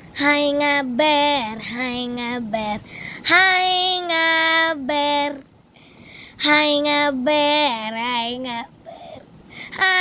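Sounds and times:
child singing: 0:00.2 - 0:05.4, 0:06.4 - 0:08.8, 0:09.8 - 0:10.0.

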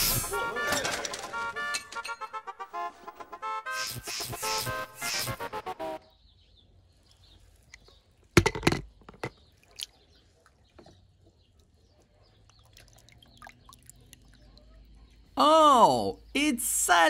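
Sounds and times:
toy cars clattering: 0:00.0 - 0:02.4.

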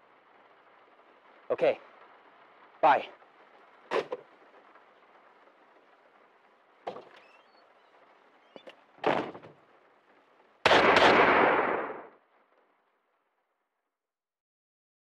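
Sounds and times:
gunshots with echo: 0:10.6 - 0:12.2.

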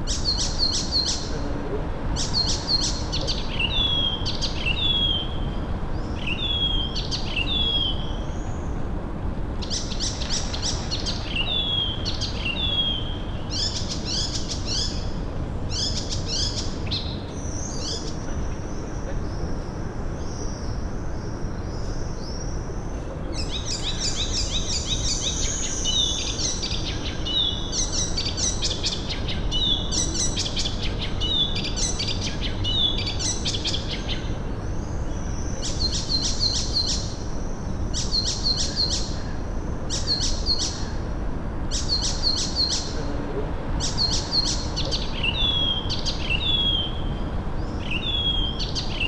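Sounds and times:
small songbirds singing: 0:00.0 - 0:08.9, 0:09.6 - 0:49.0
low background noise: 0:00.0 - 0:49.0.

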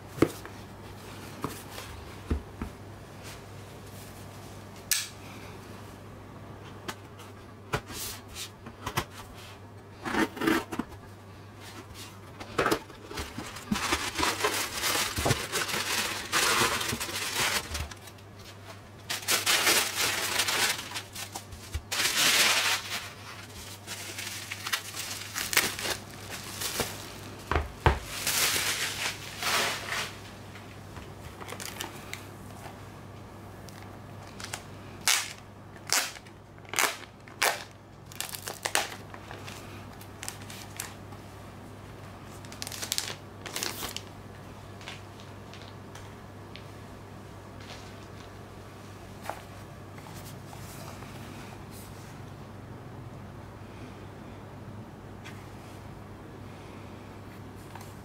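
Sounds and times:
packing material rustling: 0:12.0 - 0:30.4, 0:31.3 - 0:32.3, 0:33.7 - 0:41.0, 0:42.3 - 0:44.1.

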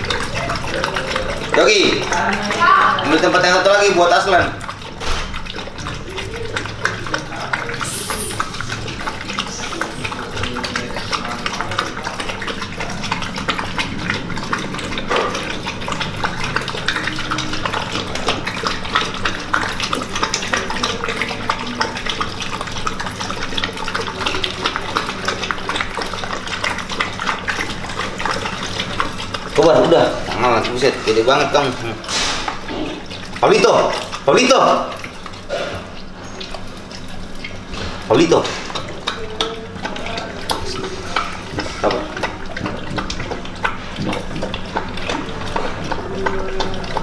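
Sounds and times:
dogs lapping milk: 0:00.0 - 0:47.0.

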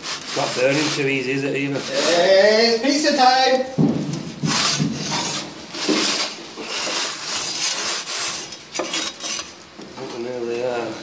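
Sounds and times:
metal scraping on hard surface: 0:00.0 - 0:02.7, 0:04.2 - 0:09.6.

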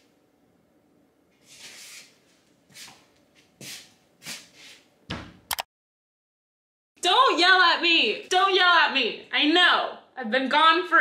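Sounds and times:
thump: 0:05.1 - 0:05.4.

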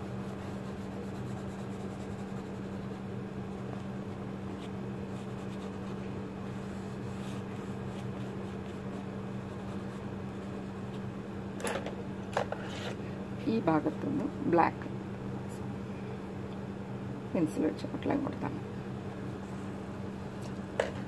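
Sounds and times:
low electrical hum: 0:00.0 - 0:21.0
pencil scratching on paper: 0:00.1 - 0:10.8, 0:12.5 - 0:13.0.

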